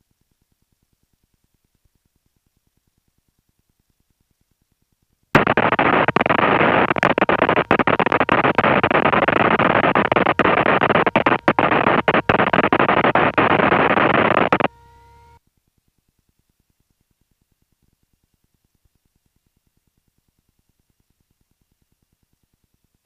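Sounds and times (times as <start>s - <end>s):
radio static hiss: 5.4s - 15.4s
short radio tone: 5.4s - 15.4s.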